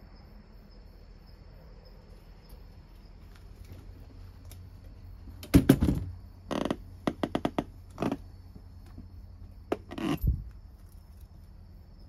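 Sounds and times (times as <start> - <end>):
cricket trilling: 0.0 - 12.0.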